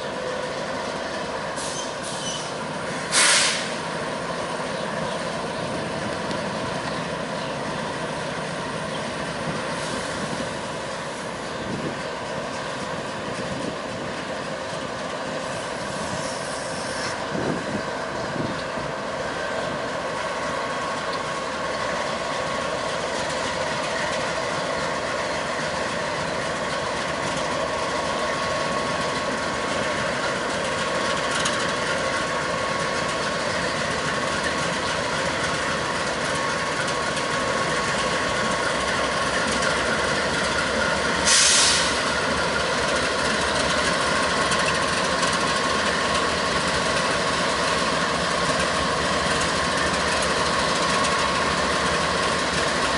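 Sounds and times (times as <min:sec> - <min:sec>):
diesel locomotive engine drone: 0:00.0 - 0:52.9
short hiss: 0:01.6 - 0:03.8, 0:16.1 - 0:17.2, 0:41.2 - 0:42.1.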